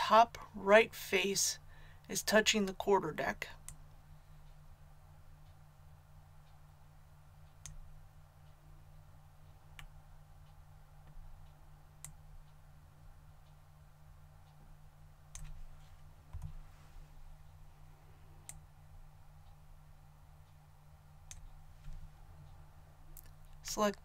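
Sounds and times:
faint low hum: 0.0 - 24.0
computer mouse clicks: 7.5 - 7.8, 15.3 - 15.6, 16.3 - 16.6, 21.3 - 22.0.

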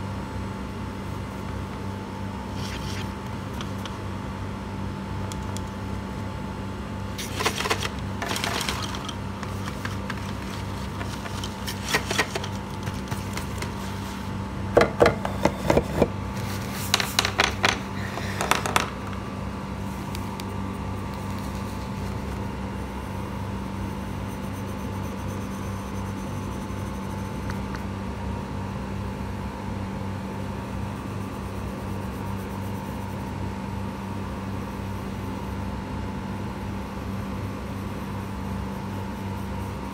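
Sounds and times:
steady low hum: 0.0 - 39.9
rustling and tapping of materials: 7.2 - 14.2.

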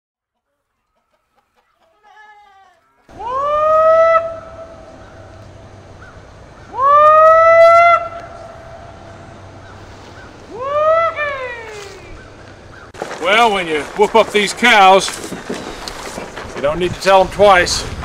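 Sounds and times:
farmer whooping to call cattle: 2.1 - 5.0, 6.7 - 8.5, 10.5 - 12.2.

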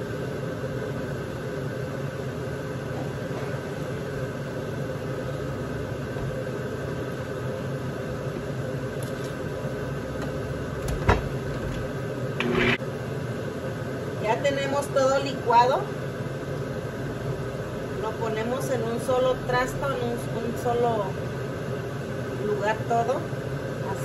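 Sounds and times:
kitchen appliance humming: 0.7 - 12.8.

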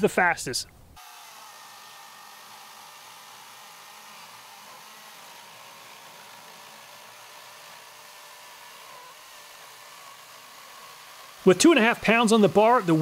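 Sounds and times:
electric chainsaw whir: 1.0 - 13.0.

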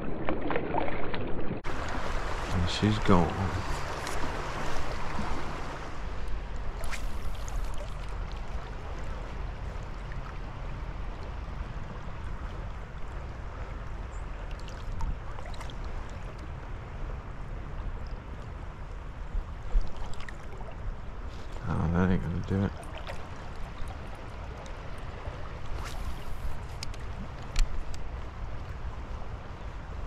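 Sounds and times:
creek water rushing: 1.6 - 13.8
faint clicks: 25.7 - 28.1.

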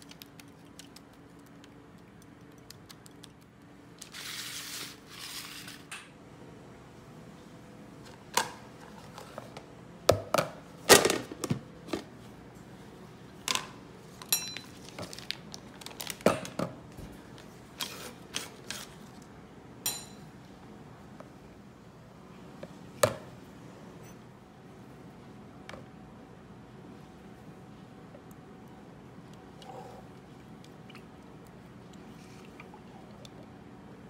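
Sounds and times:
parchment paper rustle: 4.0 - 5.8.

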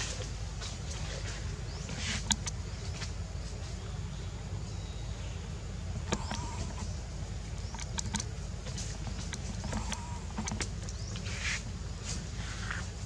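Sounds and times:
steady low rumble: 0.0 - 13.0
sharp clicks: 6.0 - 7.0, 7.6 - 11.3.

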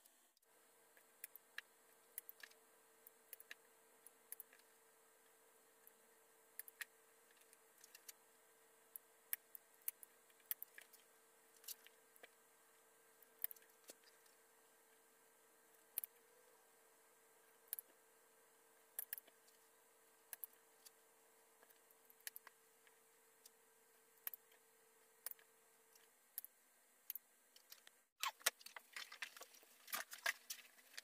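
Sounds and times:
faint steady hum: 0.0 - 31.0
soft clicks and ticks: 19.0 - 19.6, 24.2 - 24.6.

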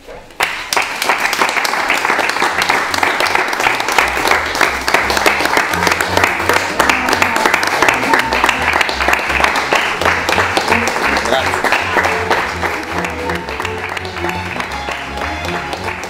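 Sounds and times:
people clapping: 0.2 - 16.0.

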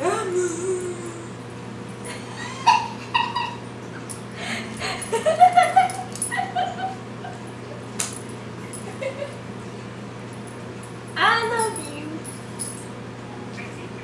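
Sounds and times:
women laughing high-pitched: 2.1 - 3.6.

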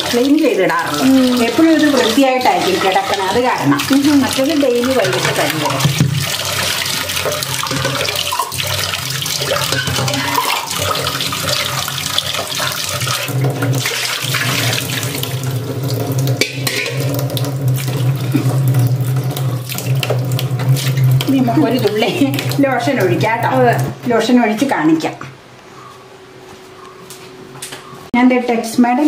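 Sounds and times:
tap water splashing into sink: 0.0 - 24.0
water splashing off steel pots: 0.0 - 24.1
pots knocking: 0.8 - 18.9.

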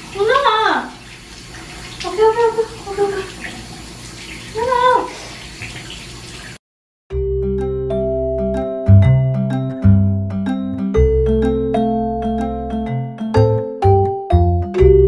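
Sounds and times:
tap water running into bathtub: 0.0 - 6.6.

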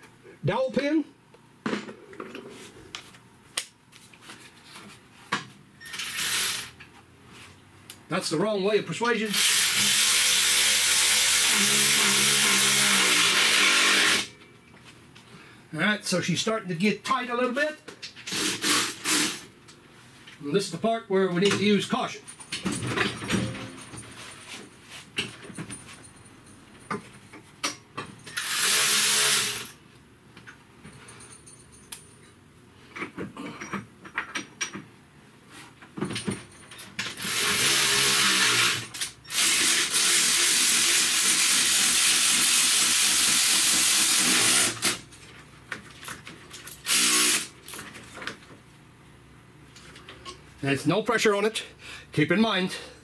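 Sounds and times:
power ratchet spinning bolt: 5.9 - 6.7, 9.3 - 14.3, 28.3 - 29.7, 37.1 - 45.0, 46.7 - 47.5.

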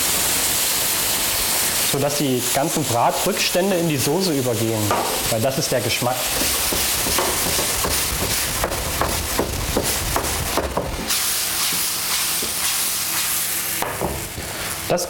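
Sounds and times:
pan sizzling: 0.0 - 15.0
pan scraping knocks: 6.3 - 11.1.

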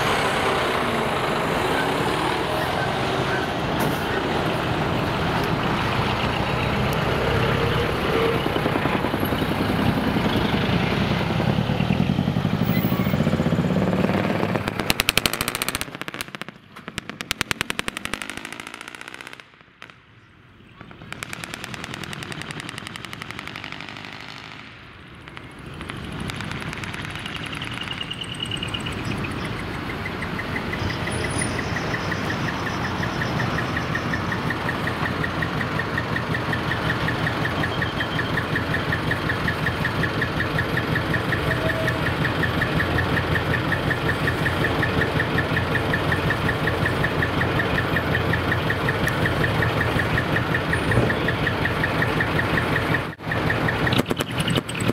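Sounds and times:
diesel truck engines pulsing: 0.0 - 54.9
high repeating beep: 27.1 - 54.9.

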